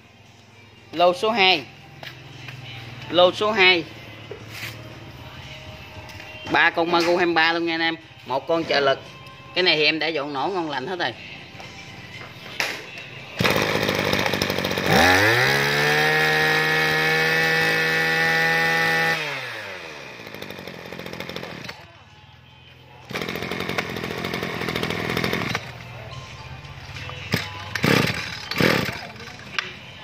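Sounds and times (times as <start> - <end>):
brush cutter engine revving: 13.4 - 21.8, 23.1 - 25.8, 27.3 - 29.4.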